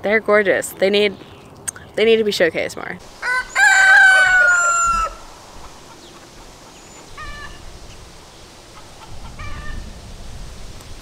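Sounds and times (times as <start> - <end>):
rooster crowing: 3.2 - 6.0.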